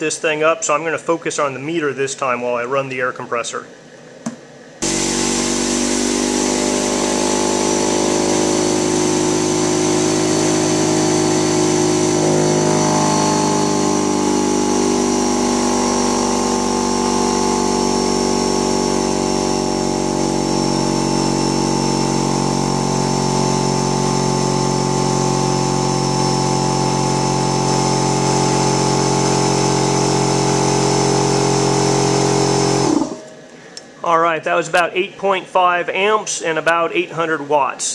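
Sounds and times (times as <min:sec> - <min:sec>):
air compressor running: 0:04.8 - 0:33.4.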